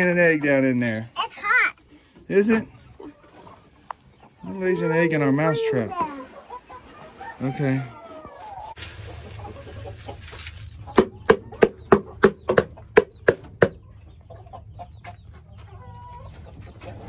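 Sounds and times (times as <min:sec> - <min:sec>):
hen clucking: 0:00.0 - 0:17.0
feed rustling in plastic scoop: 0:08.4 - 0:11.0.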